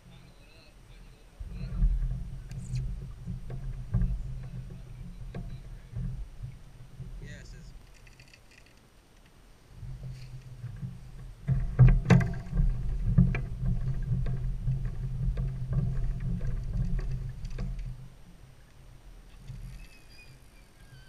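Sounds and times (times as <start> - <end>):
muffled low rumbling: 0.8 - 7.8
sharp knocks on kayak: 9.9 - 18.0.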